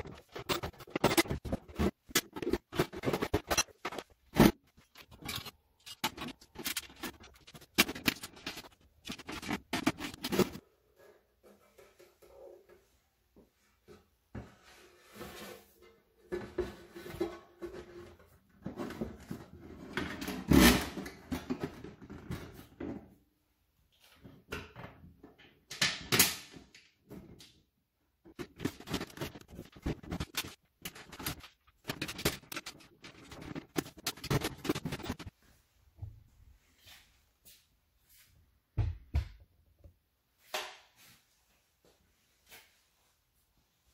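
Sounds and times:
sheet metal rattling and scraping: 0.0s - 10.6s, 28.3s - 35.3s.

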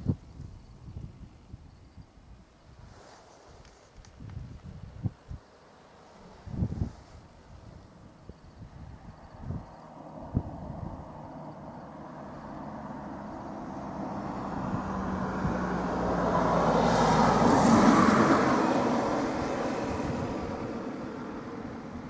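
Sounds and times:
vehicle passing by: 8.8s - 22.0s.

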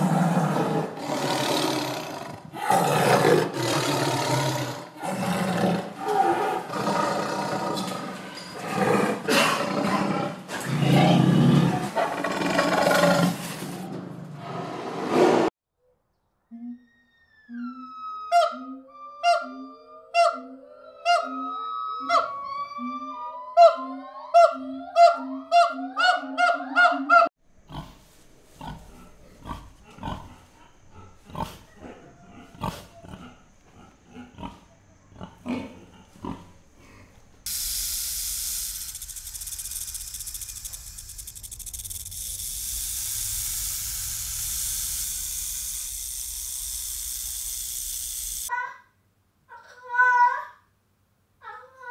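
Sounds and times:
pigs grunting: 0.0s - 13.5s, 27.7s - 28.0s, 28.6s - 37.2s
monkey calling: 16.8s - 27.3s
cobra hissing: 35.9s - 48.5s.

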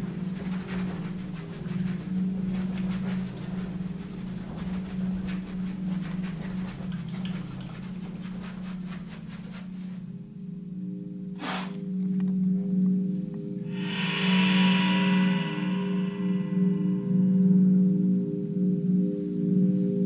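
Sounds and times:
faint clicks and rustles: 0.0s - 10.2s
low humming drone: 0.0s - 20.0s.

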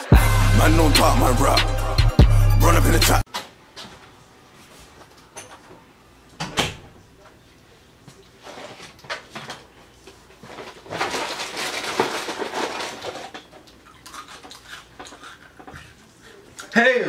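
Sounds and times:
rustling and shuffling: 3.6s - 5.8s, 7.2s - 13.4s.

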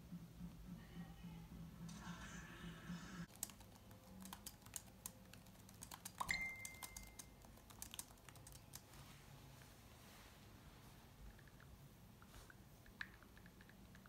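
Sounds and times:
typing on laptop keyboard: 3.3s - 9.0s
phone message alert chime: 6.3s - 7.2s.

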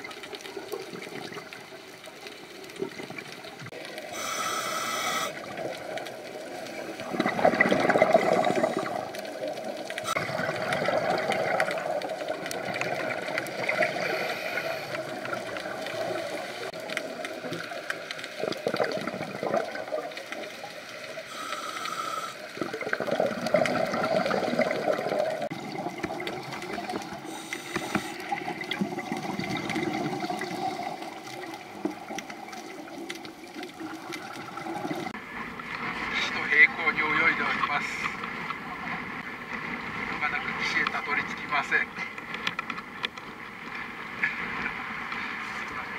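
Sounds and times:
exhaled air bubbling: 0.0s - 35.2s
regulator breathing underwater: 4.0s - 5.5s, 8.0s - 9.1s, 13.9s - 15.2s, 21.3s - 22.6s, 27.2s - 28.4s.

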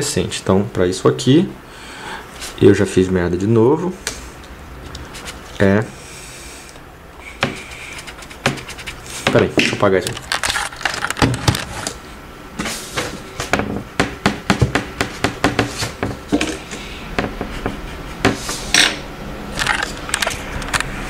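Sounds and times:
eraser rubbing on paper: 7.2s - 9.4s
knocks against desk: 13.0s - 16.6s.

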